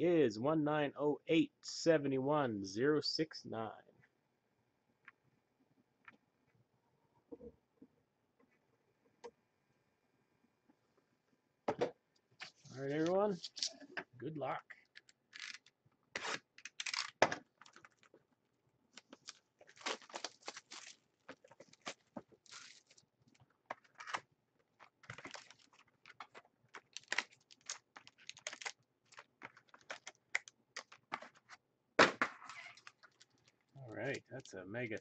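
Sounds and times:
shrink wrap crinkling: 0:18.9 - 0:24.2, 0:24.8 - 0:31.4, 0:32.5 - 0:35.0
foil packs handled: 0:19.0 - 0:23.0, 0:24.9 - 0:31.0.

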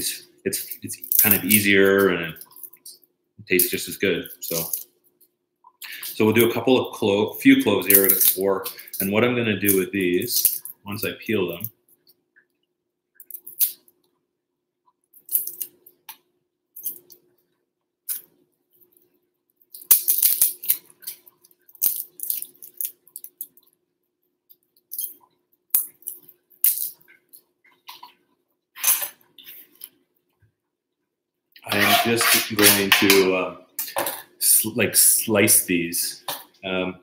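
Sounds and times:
knife scraping garlic skin: 0:31.7 - 0:33.9.

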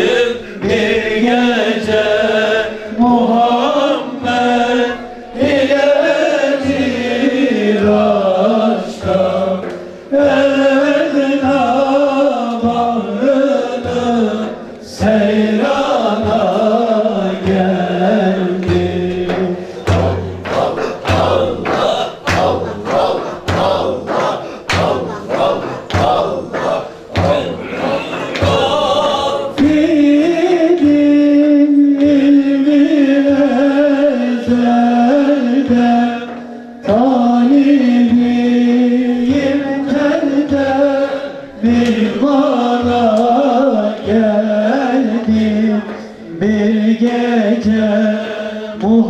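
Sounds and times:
voices singing a chant: 0:00.0 - 0:49.0
steady low beat: 0:17.2 - 0:31.1.

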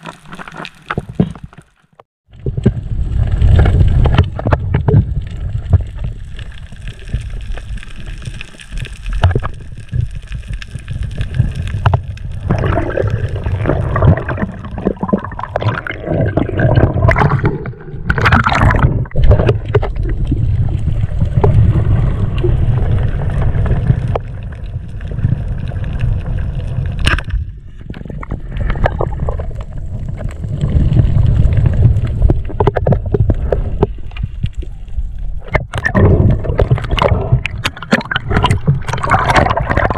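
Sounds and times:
muffled underwater gurgling: 0:11.3 - 0:24.6.

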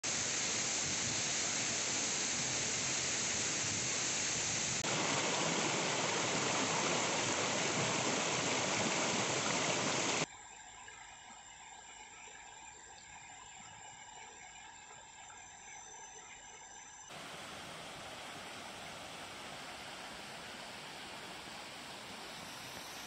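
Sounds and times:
stream rushing over stones: 0:00.0 - 0:10.2, 0:17.1 - 0:23.0
faint steady tones: 0:00.0 - 0:23.0.

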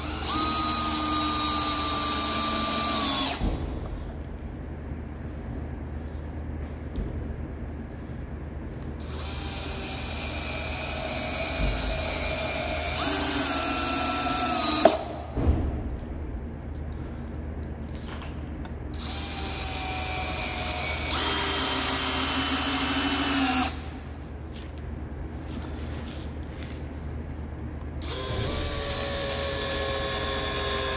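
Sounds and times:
cordless drill driving screws: 0:00.0 - 0:03.4, 0:09.1 - 0:15.0, 0:19.0 - 0:23.8.

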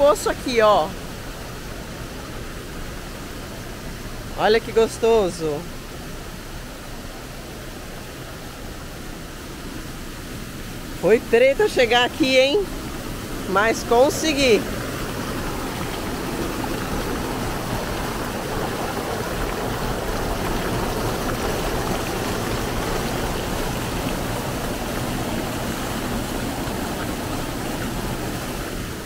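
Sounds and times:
mountain stream rushing: 0:00.0 - 0:29.0
water pouring into a pool: 0:14.4 - 0:29.0.

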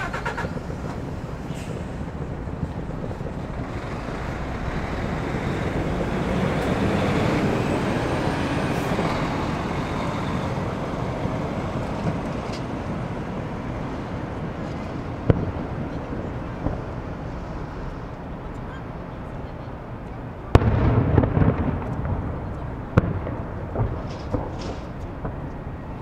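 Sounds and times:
road traffic passing: 0:00.0 - 0:26.0
firework bang: 0:11.1 - 0:18.1, 0:20.5 - 0:25.6.

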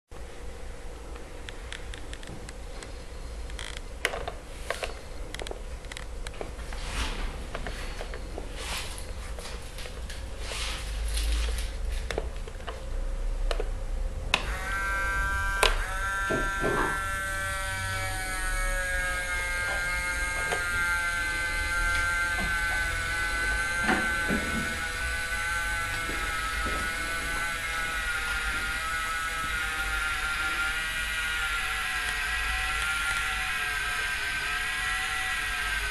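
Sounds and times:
electric winch motor whine: 0:14.2 - 0:35.9.

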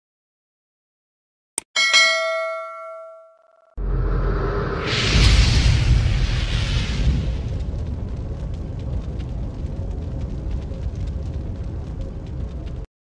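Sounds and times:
low boom impact: 0:03.8 - 0:12.8.

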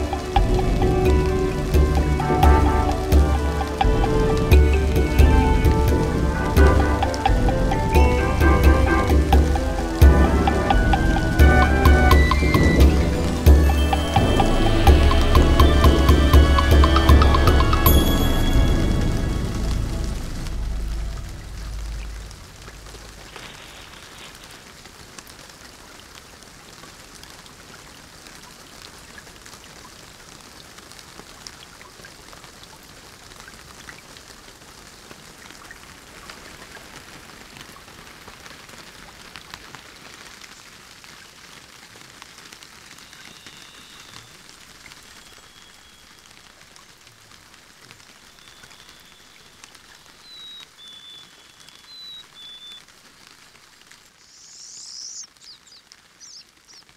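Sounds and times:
rain pattering on leaves: 0:00.0 - 0:56.9
bird calling: 0:48.2 - 0:52.8.

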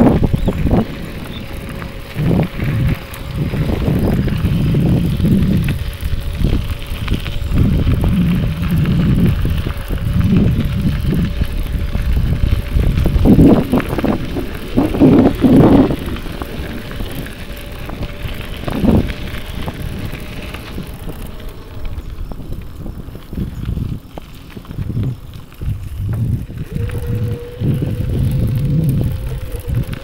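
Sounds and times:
bicycle rolling on a trail: 0:00.0 - 0:30.0
wind buffeting microphone: 0:00.0 - 0:30.0.

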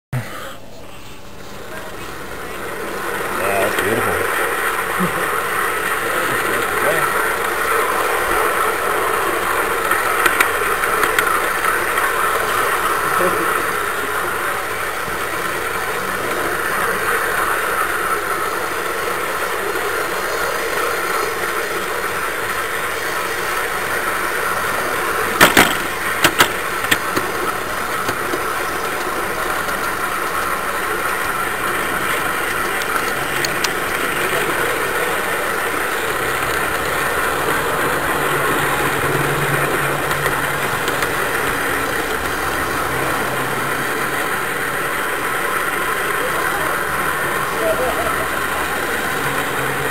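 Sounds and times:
model train rolling on track: 0:00.2 - 0:49.9
sharp clicks: 0:25.4 - 0:27.3.

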